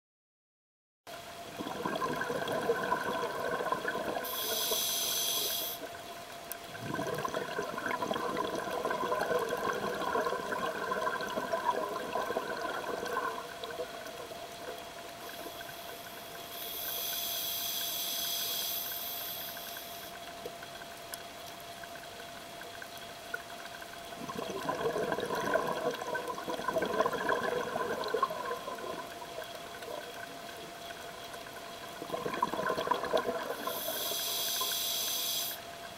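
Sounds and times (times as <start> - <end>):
faint steady tone: 1.1 - 35.9
exhaled bubbles gurgling: 1.4 - 5.6, 6.6 - 17.1, 23.9 - 35.6
regulator hissing on inhale: 4.2 - 5.9, 15.2 - 20.2, 33.4 - 35.7.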